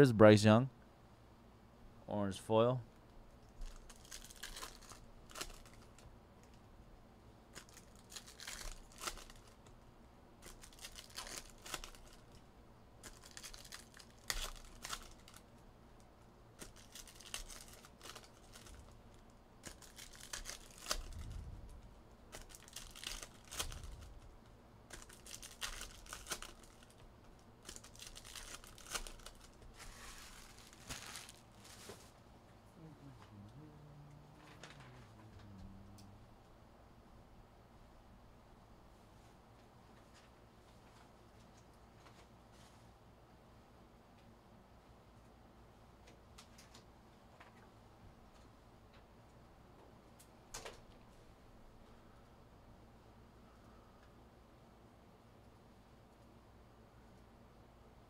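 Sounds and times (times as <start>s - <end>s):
card pack wrappers tearing and crinkling: 3.6s - 6.0s, 7.5s - 9.6s, 10.4s - 12.2s, 13.0s - 15.5s, 16.6s - 18.9s, 19.6s - 21.4s, 22.3s - 24.2s, 24.9s - 27.0s, 27.6s - 32.1s.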